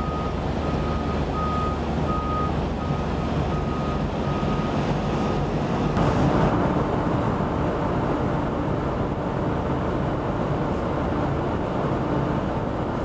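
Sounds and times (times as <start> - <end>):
reversing alarm beeping: 0.0 - 5.5
harbour rumble: 0.0 - 13.0.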